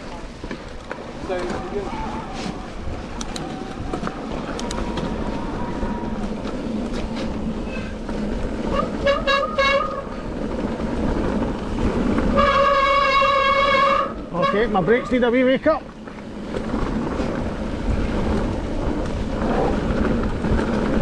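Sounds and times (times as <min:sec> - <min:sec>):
tyres rolling on gravel: 0:00.0 - 0:21.0
wind: 0:00.0 - 0:21.0.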